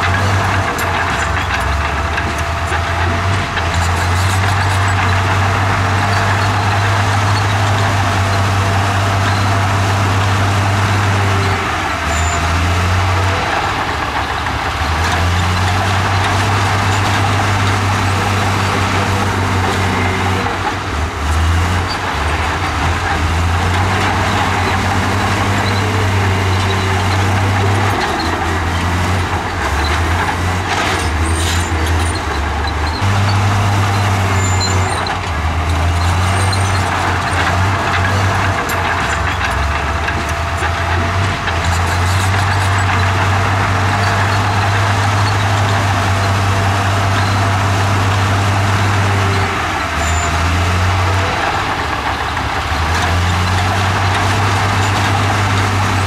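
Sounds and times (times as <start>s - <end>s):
bulldozer diesel engine under load: 0.0s - 56.0s.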